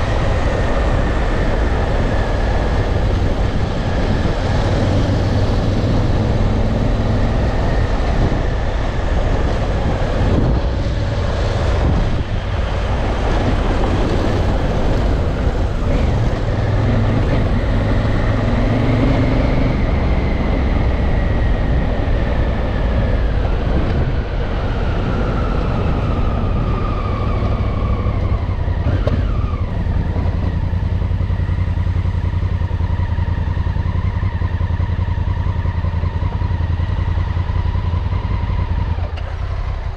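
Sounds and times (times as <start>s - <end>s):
motorcycle engine running: 28.2s - 39.9s.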